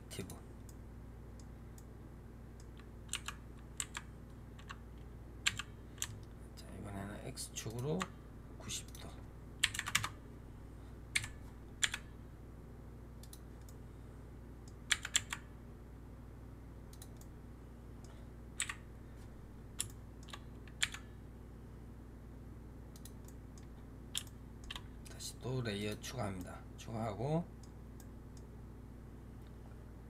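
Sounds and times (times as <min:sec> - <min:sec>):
faint electrical hum: 0:00.0 - 0:30.0
keyboard and mouse clicks: 0:02.6 - 0:04.8, 0:19.8 - 0:21.1, 0:22.9 - 0:24.9.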